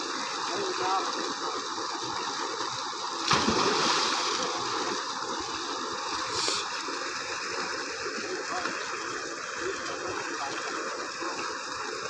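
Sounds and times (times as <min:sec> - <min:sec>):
water gushing into a concrete tank: 0:00.0 - 0:12.0
swimmer diving splash: 0:03.2 - 0:04.6.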